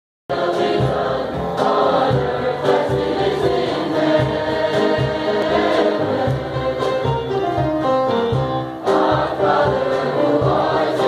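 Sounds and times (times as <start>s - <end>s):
choir singing: 0.3s - 7.5s, 8.8s - 11.0s
steady low beat: 0.4s - 8.5s.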